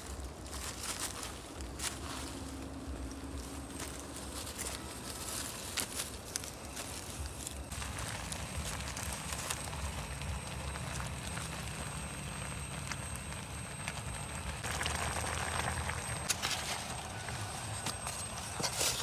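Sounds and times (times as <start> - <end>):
gas stove burning: 1.3 - 19.0
fork scraping metal pot: 18.5 - 19.0.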